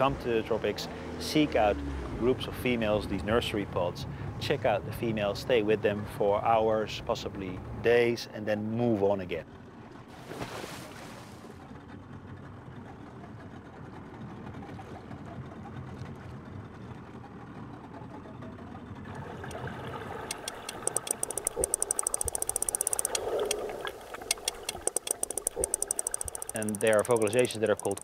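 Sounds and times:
whale clicks underwater: 19.4s - 28.0s.

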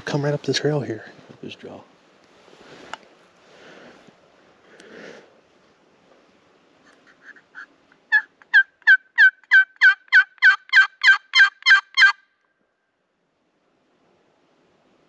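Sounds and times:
turkey call yelps: 6.9s - 12.4s.

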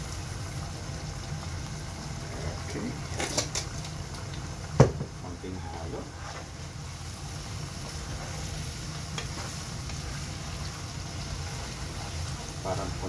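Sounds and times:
sauce sizzling: 0.0s - 13.0s
wooden spoon scraping a pot: 5.9s - 6.6s.

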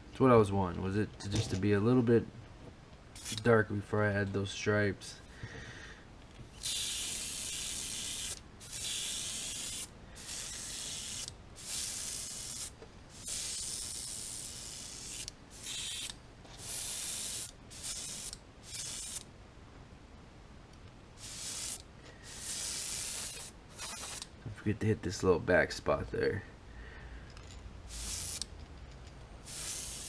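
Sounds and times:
airbrush spraying hiss: 3.2s - 3.4s, 6.5s - 19.3s, 21.2s - 24.3s, 27.9s - 28.5s, 29.4s - 30.0s.

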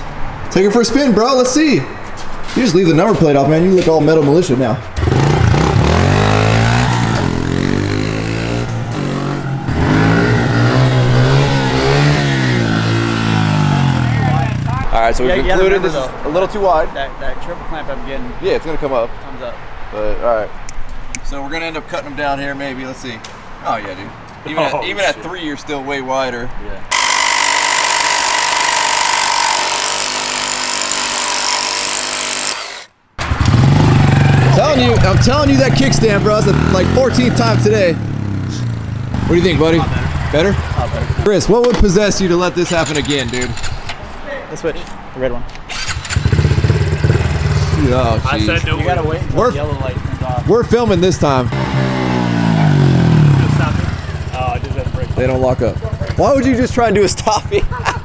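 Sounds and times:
dirt bike engine revving: 5.0s - 14.8s, 26.9s - 41.5s, 45.8s - 57.1s
reciprocating saw cutting metal: 26.9s - 33.0s.

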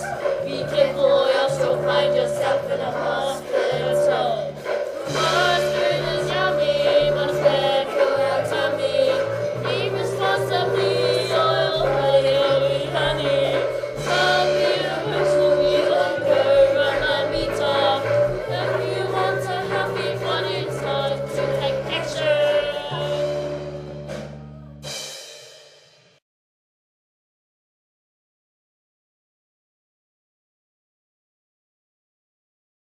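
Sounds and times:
students singing together: 0.0s - 23.4s
instrumental backing with bass line: 0.0s - 25.5s.

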